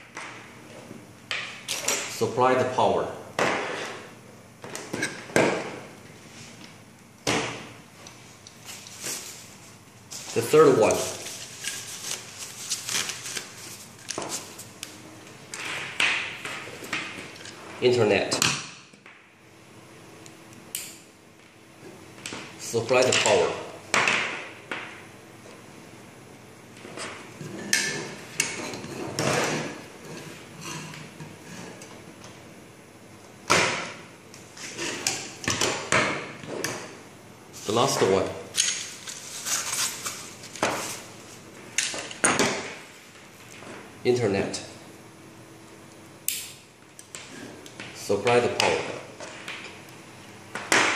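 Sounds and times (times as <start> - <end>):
plastic wrapping crinkling: 8.6 - 14.7.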